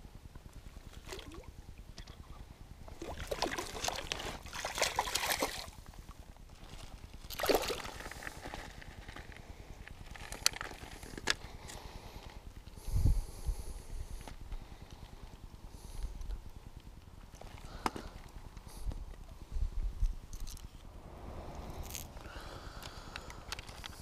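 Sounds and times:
water sloshing: 0:02.9 - 0:05.8
fish splashing in water: 0:03.0 - 0:05.8.

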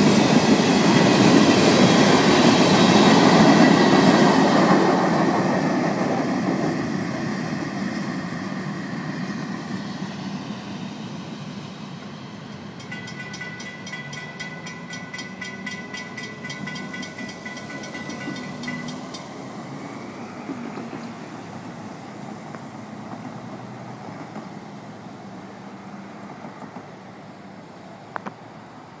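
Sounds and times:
low rumble of cars crossing tracks: 0:00.0 - 0:29.0
railroad crossing bell ringing: 0:12.4 - 0:19.6.

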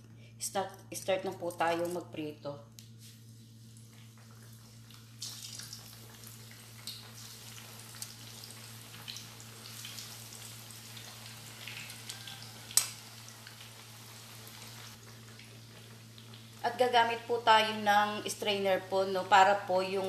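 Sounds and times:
slices sizzling in hot oil: 0:03.8 - 0:17.8.

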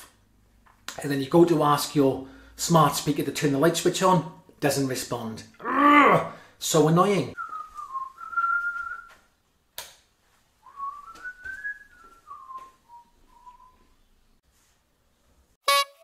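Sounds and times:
man whistling a tune: 0:07.4 - 0:09.2, 0:10.6 - 0:14.0.

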